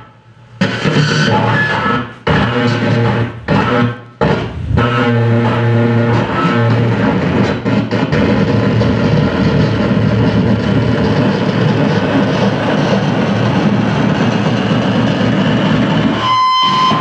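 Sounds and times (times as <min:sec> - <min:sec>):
dense distorted noise: 0:00.0 - 0:17.0
steady high tone: 0:03.1 - 0:05.7.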